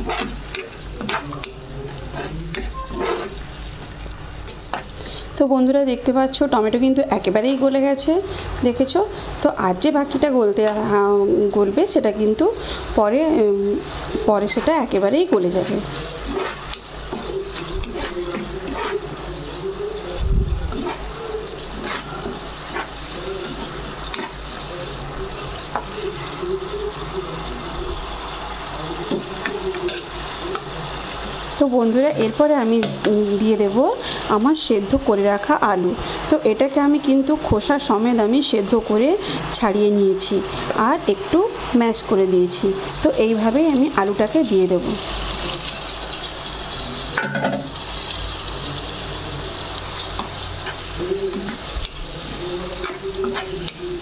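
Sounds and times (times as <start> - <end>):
spoon stirring: 0.0 - 3.7, 13.8 - 27.4, 28.9 - 31.4, 49.5 - 54.0
gravy sizzling in a pan: 0.0 - 54.0.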